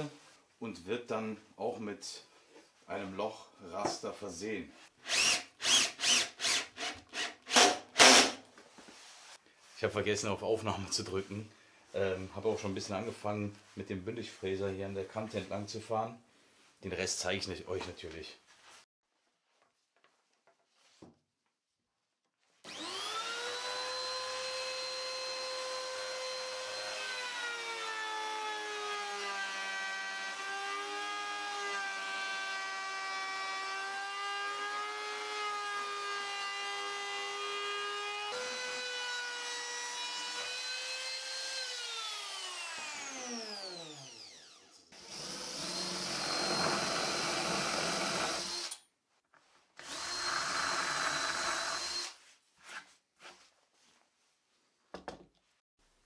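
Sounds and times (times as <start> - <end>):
rough power tool bursts: 5.1 - 8.4
trim router motor whine: 22.7 - 27.7, 38.4 - 48.7, 49.8 - 52.1.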